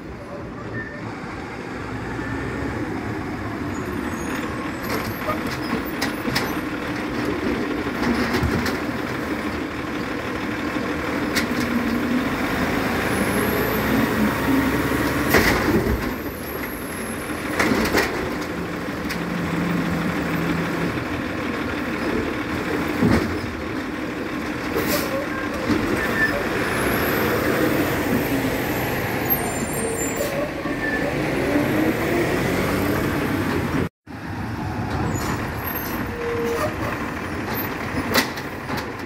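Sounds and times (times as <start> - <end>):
garbage truck engine running: 4.1 - 31.2.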